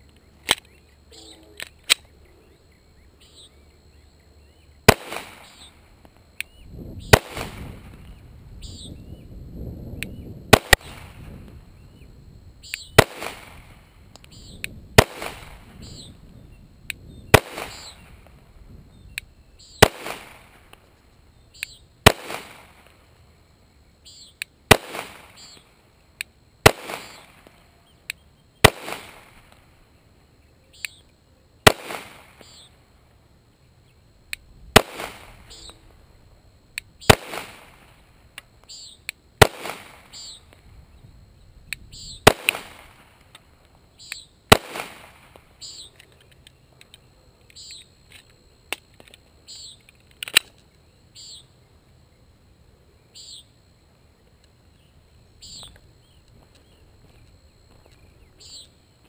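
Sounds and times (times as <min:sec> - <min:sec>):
pistol shots with echo: 0:04.9 - 0:05.6, 0:07.0 - 0:07.9, 0:10.5 - 0:11.2, 0:13.0 - 0:13.8, 0:15.0 - 0:15.7, 0:17.3 - 0:18.1, 0:19.8 - 0:20.6, 0:22.0 - 0:22.9, 0:24.7 - 0:25.5, 0:26.6 - 0:27.4, 0:28.6 - 0:29.4, 0:31.7 - 0:32.6, 0:34.8 - 0:35.6, 0:37.0 - 0:37.9, 0:39.4 - 0:40.2, 0:42.2 - 0:43.0, 0:44.5 - 0:45.2.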